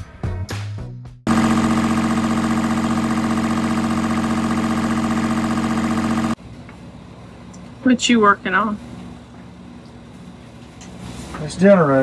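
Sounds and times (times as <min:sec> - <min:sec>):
engine humming steadily: 0:01.3 - 0:09.4.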